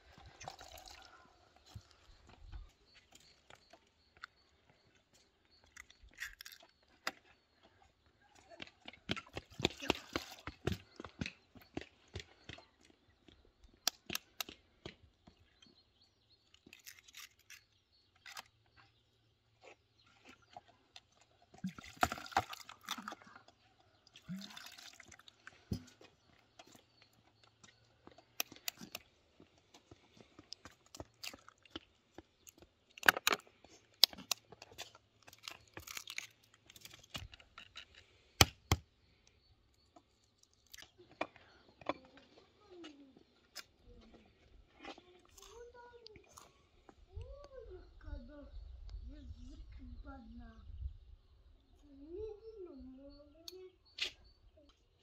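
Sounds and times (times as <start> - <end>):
water pouring: 0.1 - 1.1, 24.2 - 25.3
eggshells cracking: 5.7 - 6.7, 16.6 - 18.5, 32.5 - 37.7.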